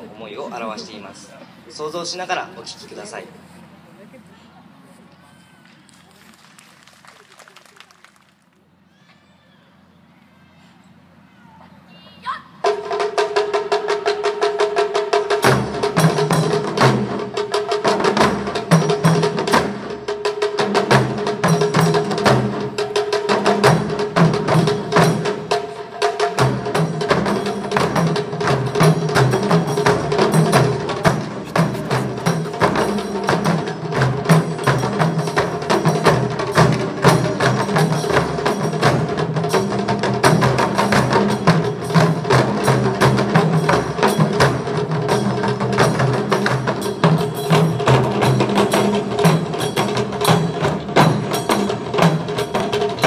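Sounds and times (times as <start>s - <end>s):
taiko drums striking: 12.6s - 53.0s
deep drum strokes: 12.7s - 53.0s.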